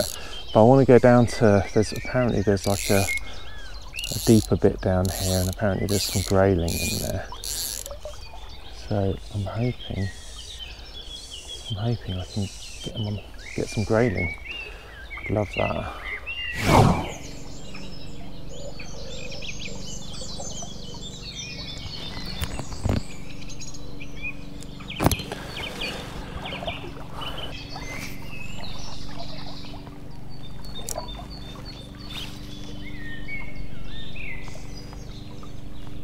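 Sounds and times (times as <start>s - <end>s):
running water: 0.0s - 10.8s
songbirds singing and chirping: 0.0s - 36.0s.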